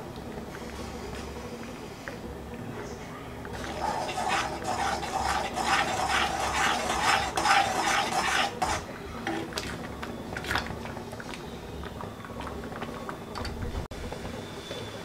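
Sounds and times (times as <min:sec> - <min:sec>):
metal spoon scraping pan: 0:03.5 - 0:09.5.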